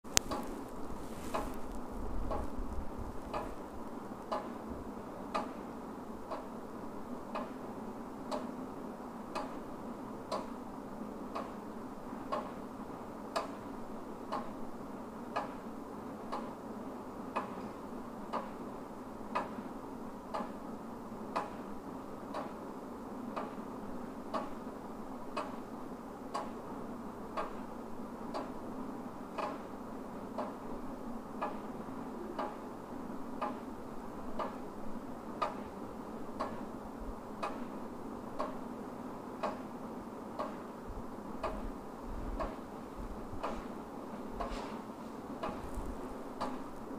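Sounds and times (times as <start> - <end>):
wall clock ticking: 0.1 - 0.6, 3.2 - 3.6, 4.2 - 4.7, 5.3 - 5.6, 6.3 - 6.6, 7.3 - 7.6, 9.3 - 9.6, 11.3 - 11.6, 12.3 - 12.6, 13.3 - 14.6, 15.3 - 16.6, 17.3 - 17.6, 18.3 - 18.7, 19.3 - 19.6, 20.3 - 20.6, 21.3 - 21.6, 22.2 - 22.6, 23.4 - 23.6, 24.3 - 24.6, 25.3 - 25.7, 26.3 - 26.6, 27.3 - 27.7, 28.3 - 28.6, 29.3 - 29.7, 30.3 - 32.7, 33.3 - 36.8, 37.4 - 39.8, 40.4 - 40.8, 41.4 - 42.8, 43.4 - 46.9
faint steady hum: 0.1 - 46.9.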